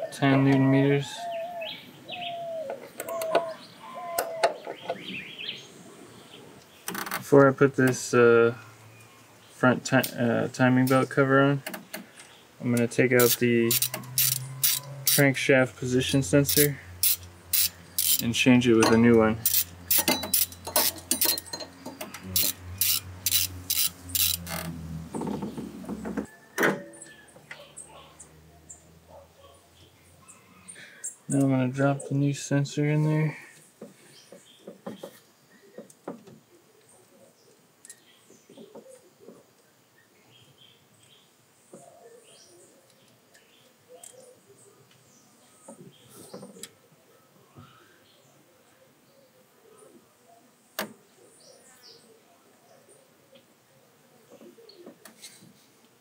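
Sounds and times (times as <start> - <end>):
ratchet wrench clicking: 13.2 - 15.3, 16.4 - 18.3, 19.4 - 24.7
light metal clicks and knocks: 18.0 - 24.4
faint bird chirps: 40.0 - 50.6.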